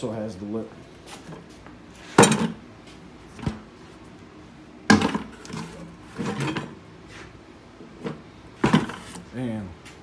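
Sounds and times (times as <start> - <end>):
bucket knocking on wood: 4.9 - 5.4, 8.6 - 9.0
plastic bucket clatter and rattle: 4.9 - 6.8, 8.0 - 9.2.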